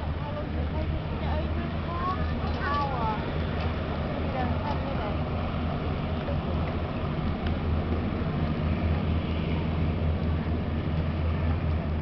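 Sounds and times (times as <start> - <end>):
hovercraft engines droning: 0.0 - 12.0.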